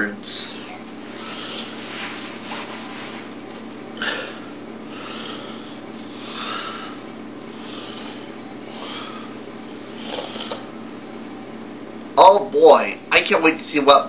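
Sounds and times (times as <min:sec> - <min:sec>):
steady low hum: 0:00.0 - 0:14.0
person breathing and sniffing: 0:01.1 - 0:03.2, 0:04.0 - 0:10.7.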